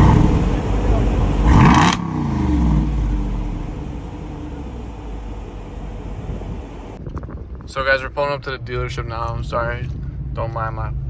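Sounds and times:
vehicle engine revving: 0:00.0 - 0:07.0.

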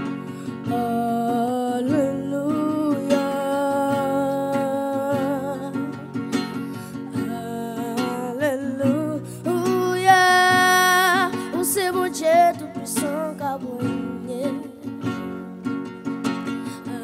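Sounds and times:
acoustic guitar strumming: 0:00.0 - 0:17.0
boy singing into a microphone: 0:00.7 - 0:06.1, 0:07.1 - 0:15.1.

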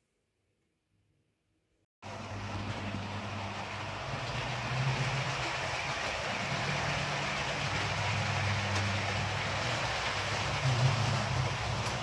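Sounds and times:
model locomotive humming: 0:02.0 - 0:12.0
wheels rolling on rail: 0:02.0 - 0:12.0.

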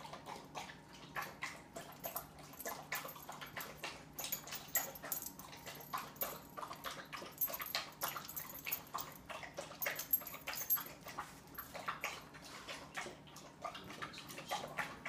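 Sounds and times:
dogs mouth clicks and smacks: 0:00.0 - 0:15.0.

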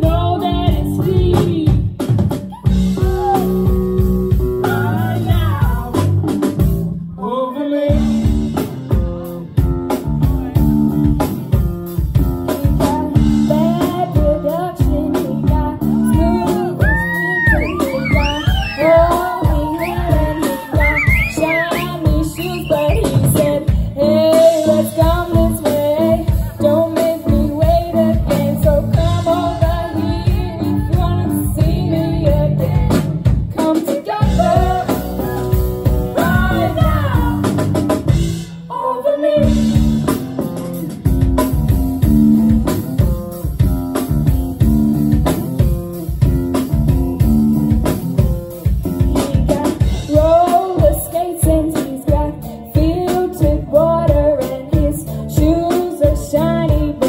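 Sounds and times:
woman singing: 0:00.0 - 0:02.1, 0:04.6 - 0:06.1, 0:12.5 - 0:37.6, 0:38.7 - 0:40.1, 0:48.8 - 0:57.0
live rock band playing: 0:00.0 - 0:57.0.

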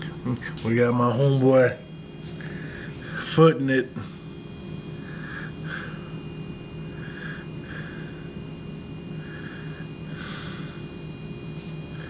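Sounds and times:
steady low hum: 0:00.0 - 0:12.0
puffs of breath: 0:02.4 - 0:03.2, 0:05.0 - 0:06.2, 0:06.9 - 0:08.4, 0:09.2 - 0:11.0.

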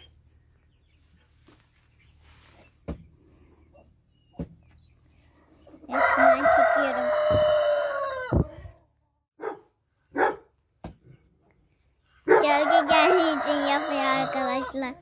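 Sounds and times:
rooster crowing: 0:05.9 - 0:08.5, 0:12.5 - 0:14.8.

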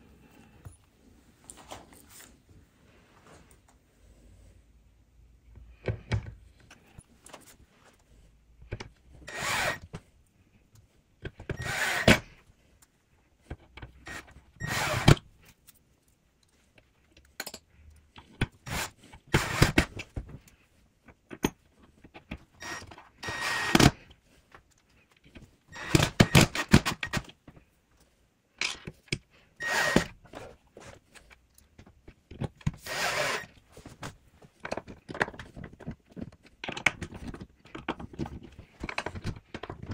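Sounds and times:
cordless drill driving screws: 0:09.2 - 0:09.8, 0:11.5 - 0:12.2, 0:14.0 - 0:15.2, 0:18.6 - 0:19.9, 0:22.6 - 0:24.0, 0:25.7 - 0:27.2, 0:29.6 - 0:30.2, 0:32.8 - 0:33.5
handling clicks and knocks: 0:33.8 - 0:39.9.

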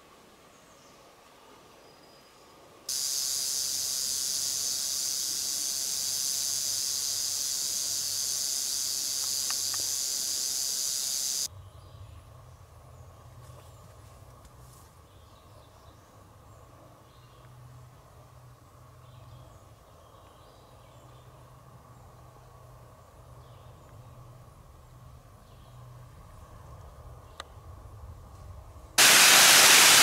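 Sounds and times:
faint forest background: 0:00.0 - 0:30.0
rattlesnake rattling: 0:02.9 - 0:11.5, 0:29.0 - 0:30.0.

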